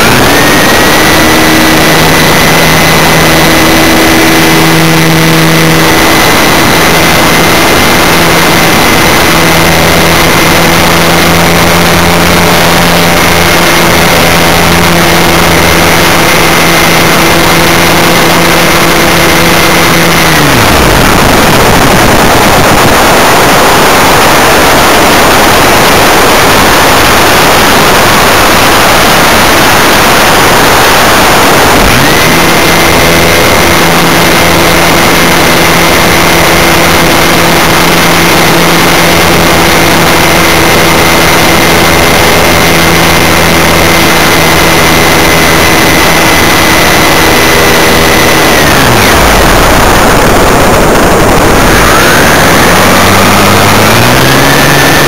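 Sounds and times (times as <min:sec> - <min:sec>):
model aircraft motor whining: 0:00.0 - 0:55.0
rushing wind noise: 0:00.0 - 0:55.0.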